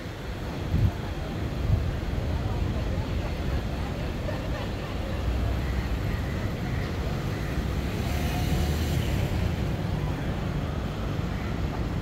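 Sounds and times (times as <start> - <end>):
faint voices: 0.0 - 8.1
traffic rumble: 0.0 - 12.0.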